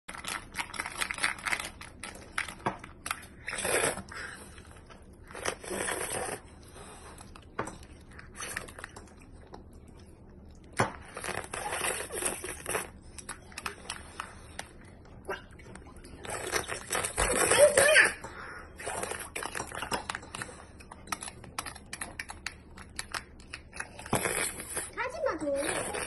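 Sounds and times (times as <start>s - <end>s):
child slurping sticky food: 3.2s - 7.1s, 11.1s - 14.4s, 15.2s - 20.5s, 23.8s - 26.0s.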